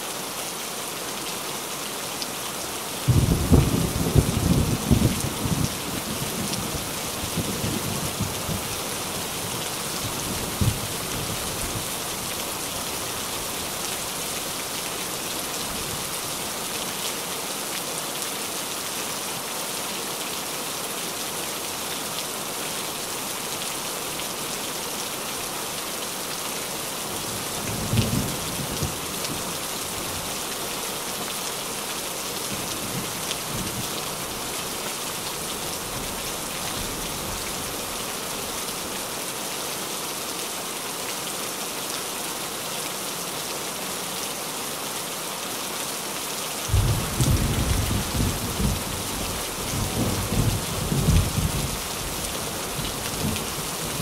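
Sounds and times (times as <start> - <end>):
rain on a tin roof: 0.0 - 54.0
low thunder rumbles: 46.7 - 51.8.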